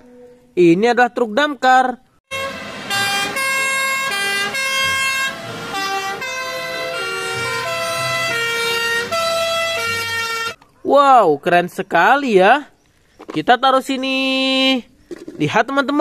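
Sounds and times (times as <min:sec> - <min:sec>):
two-tone fire engine sirens: 0:02.3 - 0:10.6.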